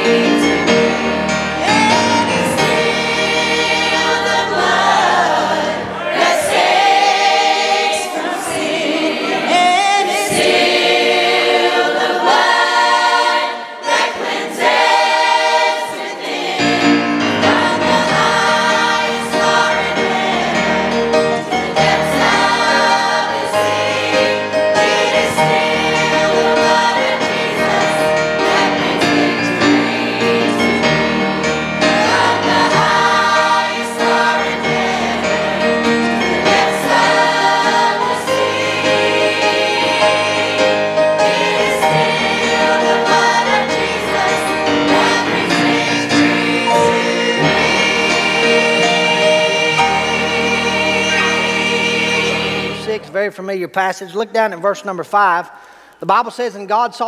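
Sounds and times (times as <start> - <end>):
choir singing gospel song: 0.0 - 53.2
instrumental accompaniment: 0.0 - 53.2
woman singing lead: 1.6 - 2.7.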